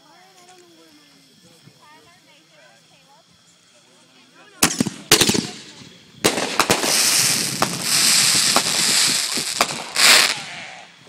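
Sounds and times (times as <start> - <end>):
fireworks crackling hiss: 0.0 - 11.0
firework bangs: 4.6 - 11.0.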